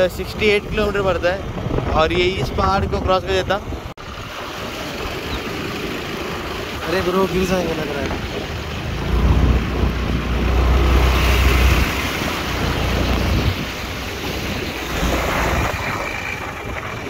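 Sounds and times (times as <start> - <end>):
scooter road and engine noise: 0.0 - 17.0
wind buffeting microphone: 0.0 - 17.0
heavy low rumble: 8.1 - 17.0.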